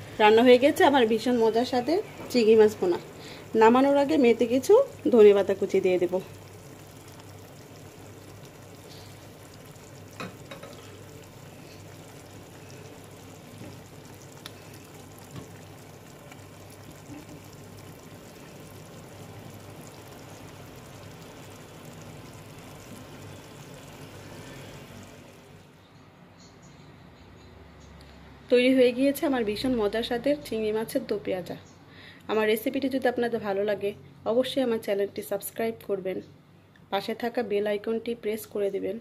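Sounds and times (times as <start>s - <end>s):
curry sizzling in a frying pan: 0.0s - 25.8s.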